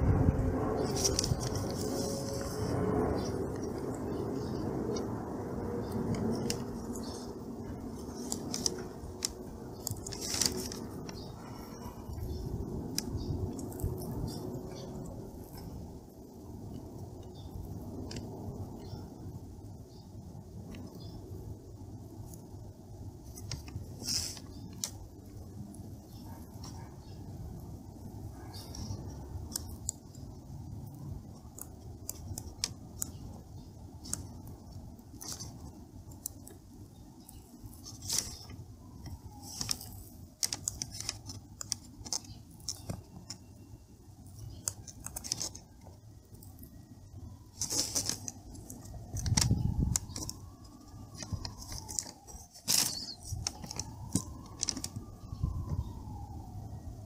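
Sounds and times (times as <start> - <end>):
low hum: 0.0 - 15.7
siren rising and falling: 48.6 - 57.0.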